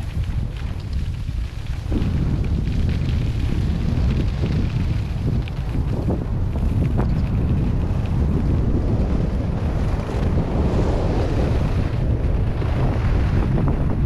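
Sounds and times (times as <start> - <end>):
wind buffeting microphone: 0.0 - 14.0
skis hissing over snow: 9.7 - 12.0.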